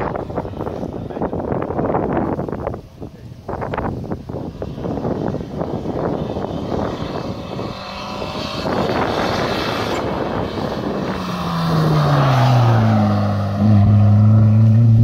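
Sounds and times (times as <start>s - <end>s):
race car engine passing by: 4.4s - 15.0s.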